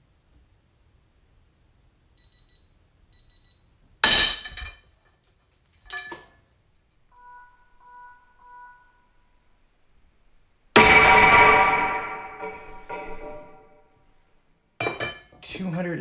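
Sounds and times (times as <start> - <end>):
metal clang: 4.0 - 4.9, 5.8 - 6.4, 10.8 - 13.9, 14.8 - 15.4
long low beeps: 7.1 - 9.5
metallic crack with ringing: 10.8 - 14.0.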